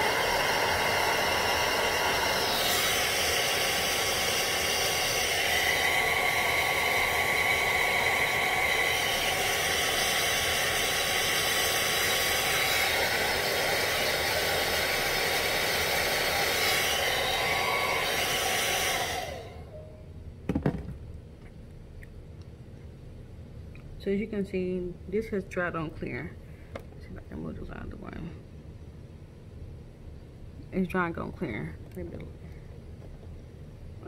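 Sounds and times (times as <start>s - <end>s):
hair dryer running: 0.0s - 19.8s.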